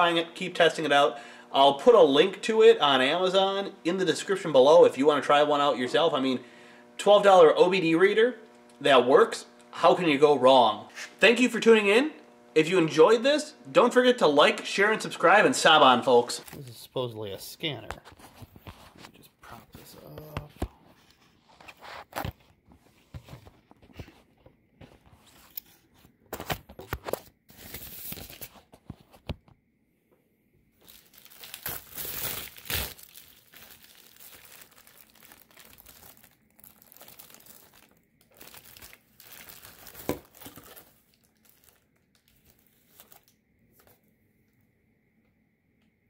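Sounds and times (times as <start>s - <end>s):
plastic mailer tearing: 27.5s - 28.6s, 30.8s - 43.4s
plastic mailer crinkling: 30.8s - 43.9s.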